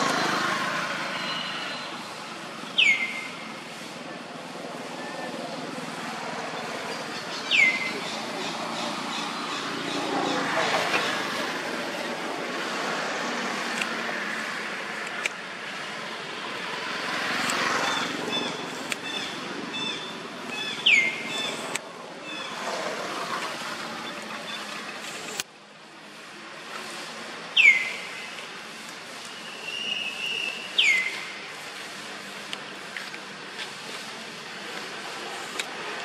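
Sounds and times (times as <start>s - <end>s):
birds chirping: 0.0s - 3.6s, 4.9s - 12.2s, 17.3s - 22.6s, 27.6s - 28.4s, 29.2s - 31.5s.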